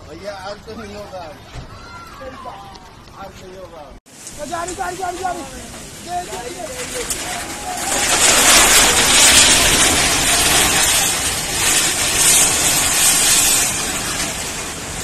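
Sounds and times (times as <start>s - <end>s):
flood torrent rushing: 4.1s - 15.0s
building collapsing into water: 5.9s - 15.0s.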